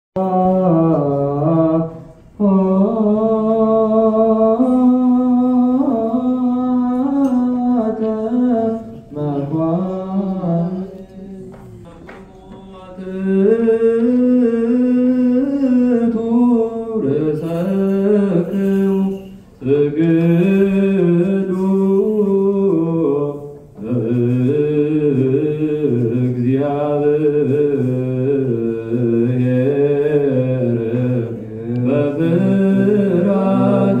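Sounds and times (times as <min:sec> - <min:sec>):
liturgical chant: 0:00.2 - 0:34.0
men chanting: 0:19.6 - 0:34.0.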